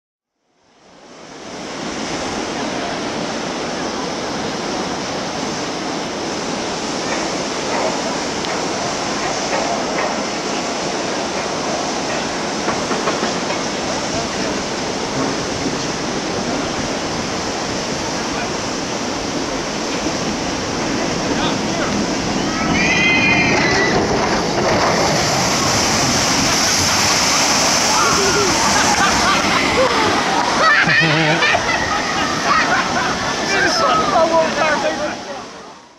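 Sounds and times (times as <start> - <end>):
water running down a chute: 1.4 - 35.6
ride train rattling on steel track: 2.6 - 35.6
faint voices: 27.9 - 35.8.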